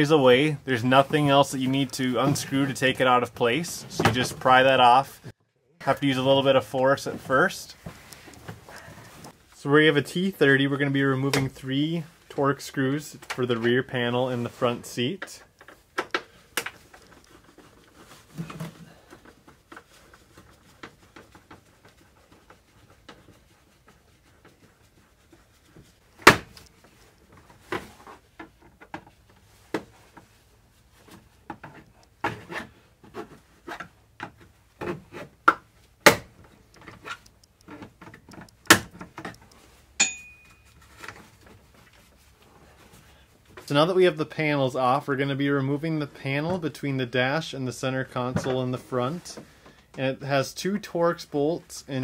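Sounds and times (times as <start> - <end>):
plastic panels clicking and rubbing: 31.0 - 39.8.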